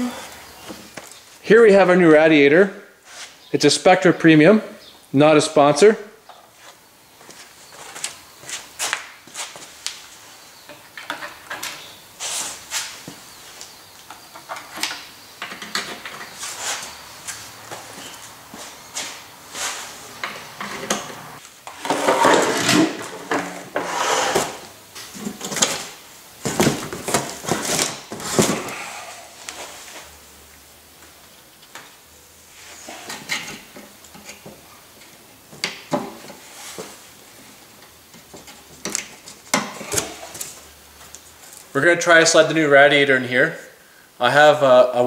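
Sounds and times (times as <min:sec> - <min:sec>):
cardboard rustling: 0:24.2 - 0:30.1.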